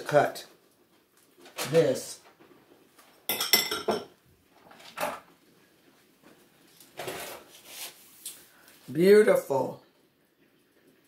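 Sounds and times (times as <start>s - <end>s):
metal kitchenware clattering: 3.3s - 4.2s.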